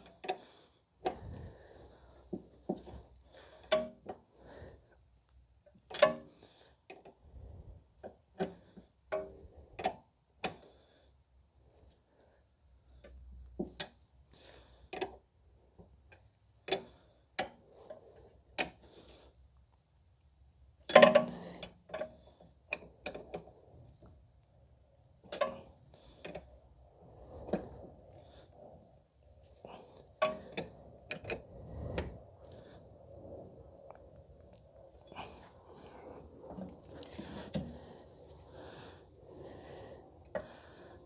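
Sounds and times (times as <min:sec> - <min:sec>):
tools clicking on metal: 0:25.3 - 0:25.7.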